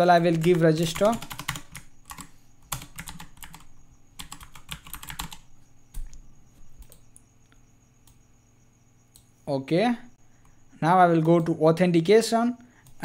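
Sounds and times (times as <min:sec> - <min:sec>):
computer keyboard typing: 0:00.0 - 0:06.2, 0:06.8 - 0:07.2, 0:11.0 - 0:11.6.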